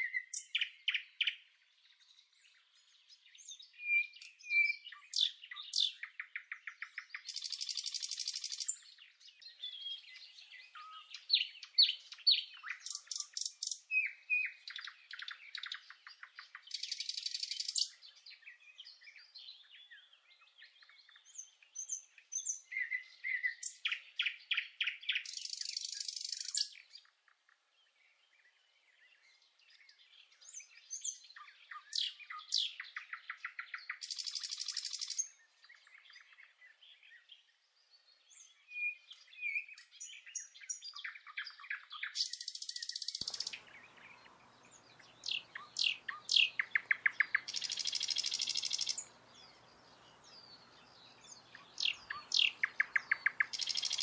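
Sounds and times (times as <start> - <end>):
songbirds chirping and whistling: 0.0 - 54.0
dry buzzy bird trill: 45.0 - 49.1, 51.5 - 54.0.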